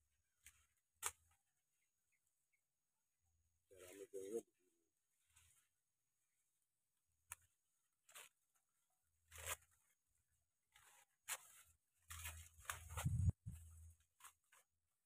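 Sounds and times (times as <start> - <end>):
dry corn leaves rustling and tearing: 7.4 - 10.0, 10.6 - 15.0.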